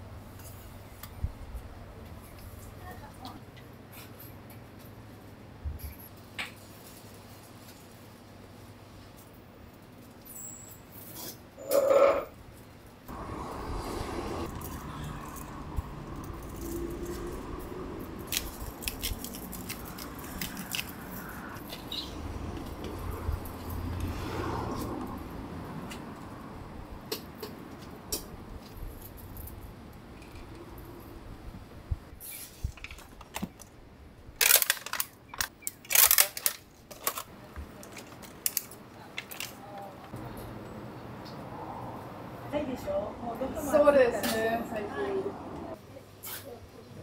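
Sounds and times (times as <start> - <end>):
plastic packaging crinkling and clicking: 18.2 - 21.1, 32.7 - 33.8, 34.4 - 39.9.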